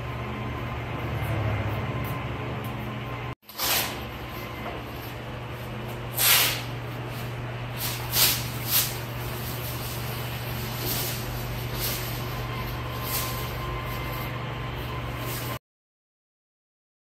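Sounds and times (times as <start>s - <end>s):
plastic film rustling: 4.8s - 14.3s.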